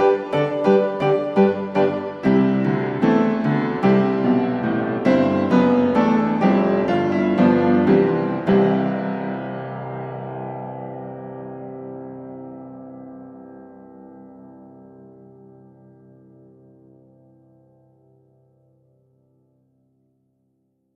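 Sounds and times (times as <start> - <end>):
piano music: 0.0 - 18.3.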